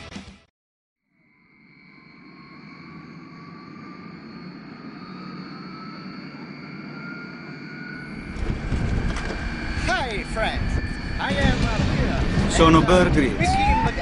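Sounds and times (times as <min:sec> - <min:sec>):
high steady whines: 0:01.2 - 0:14.0
whine rising in pitch: 0:01.2 - 0:14.0.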